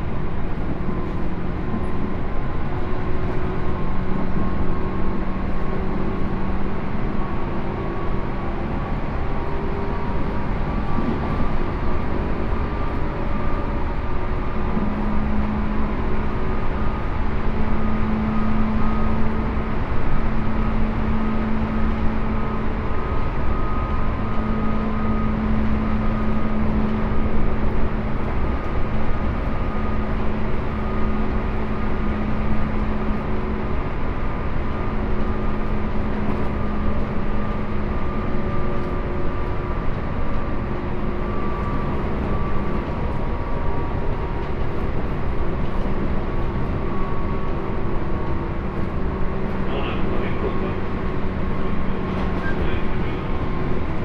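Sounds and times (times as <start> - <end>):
electric train motor hum: 0.0 - 54.0
wheels rumbling on rail: 0.0 - 54.0.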